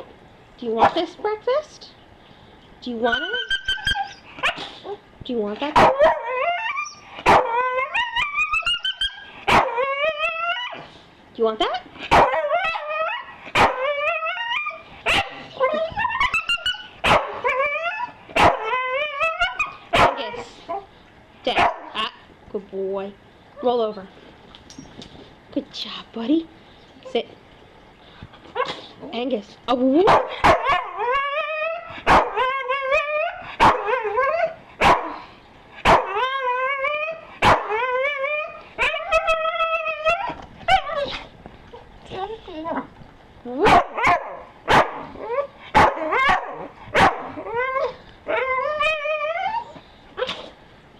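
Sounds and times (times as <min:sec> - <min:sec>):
dog whining and moaning: 0:03.0 - 0:11.0, 0:11.6 - 0:20.9, 0:28.4 - 0:29.2, 0:30.5 - 0:34.8, 0:36.0 - 0:43.0, 0:45.0 - 0:50.6
dog barking: 0:17.0 - 0:17.4, 0:20.0 - 0:20.3, 0:21.6 - 0:21.9, 0:30.0 - 0:30.9, 0:32.1 - 0:32.4, 0:33.6 - 0:33.9, 0:34.8 - 0:35.2, 0:35.8 - 0:36.2, 0:37.4 - 0:37.7, 0:43.6 - 0:45.0, 0:45.8 - 0:47.3.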